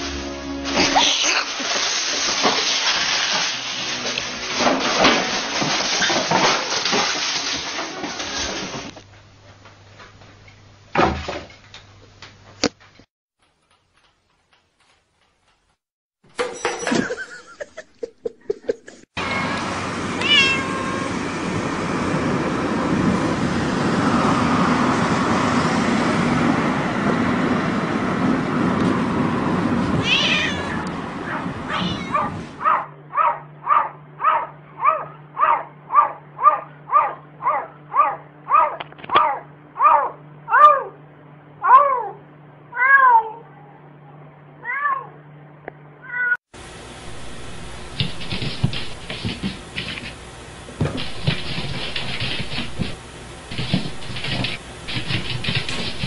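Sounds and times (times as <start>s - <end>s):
road noise of moving car: 19.2s - 30.1s
cat short repeated cries: 20.2s - 21.1s, 30.0s - 30.8s, 31.7s - 32.3s
cat yowling: 20.2s - 21.2s, 30.0s - 41.0s, 41.6s - 43.8s, 44.6s - 45.2s.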